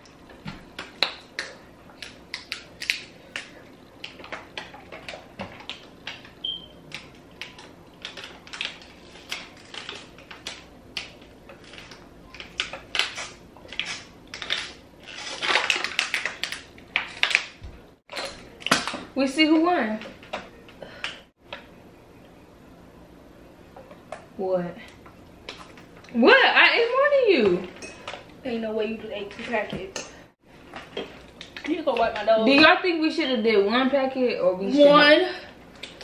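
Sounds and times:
plastic bottles crinkling: 0.3s - 19.1s.

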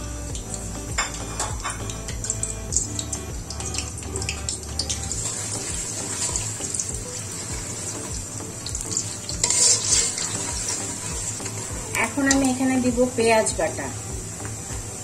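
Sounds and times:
onions sizzling in hot oil: 0.0s - 15.0s
metal spatula stirring: 8.9s - 11.7s.

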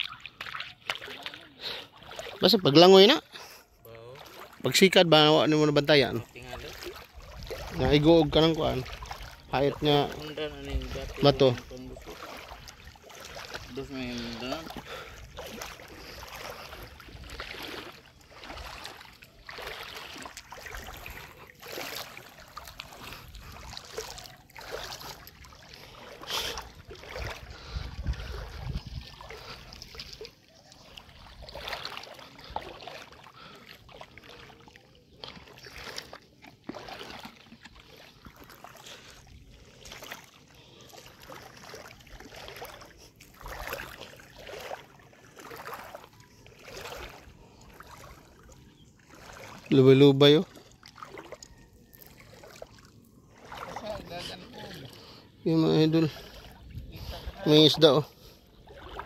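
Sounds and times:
footsteps wading through water: 0.0s - 59.0s.

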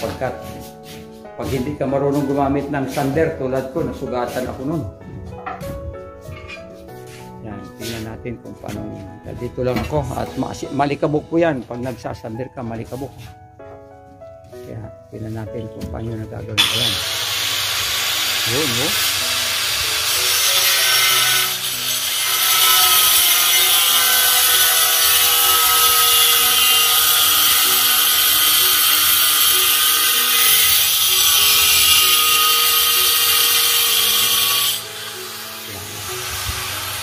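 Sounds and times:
angle grinder cutting tile: 16.6s - 37.0s.

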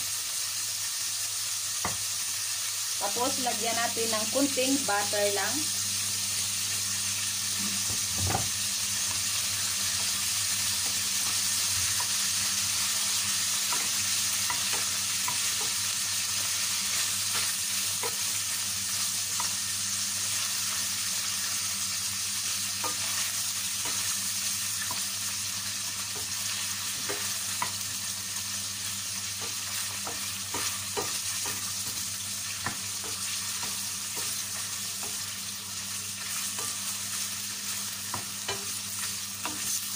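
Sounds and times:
meat sizzling in a pan: 0.0s - 39.9s
wooden spoon knocking on pan: 7.9s - 8.6s, 27.0s - 27.8s, 29.4s - 32.0s, 32.6s - 34.4s.

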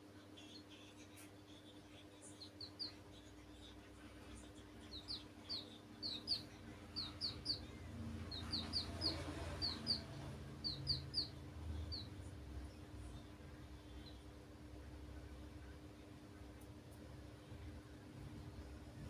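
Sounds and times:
chicks peeping: 0.4s - 14.3s.

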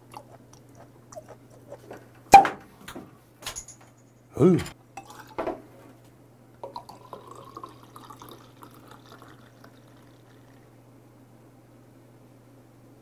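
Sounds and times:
beer glugging and fizzing: 5.0s - 5.6s, 6.6s - 10.8s.

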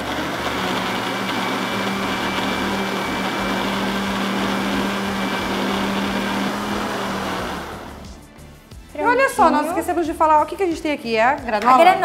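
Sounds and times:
blender running: 0.0s - 8.2s.

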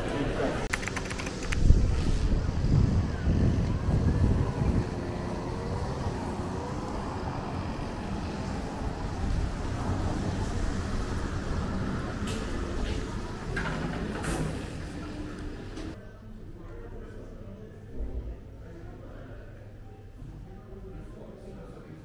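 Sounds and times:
road traffic: 0.0s - 16.0s
wind buffeting microphone: 1.2s - 15.8s.

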